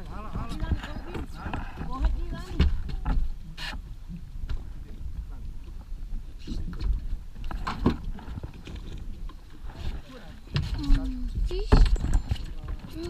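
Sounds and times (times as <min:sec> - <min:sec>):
wind and water rumble: 0:00.0 - 0:13.0.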